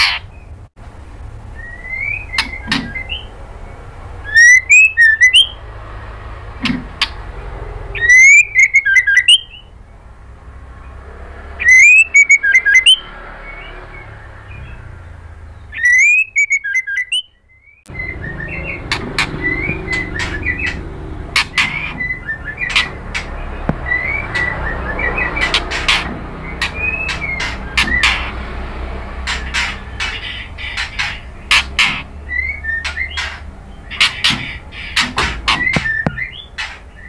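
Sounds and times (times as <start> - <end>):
bird twittering: 0.0 - 0.7, 1.4 - 5.8, 6.6 - 37.0
bird whistled song: 1.5 - 5.6, 7.9 - 9.7, 11.6 - 28.4, 29.3 - 37.0
bird sharp ticks: 2.3 - 3.2, 17.8 - 28.4.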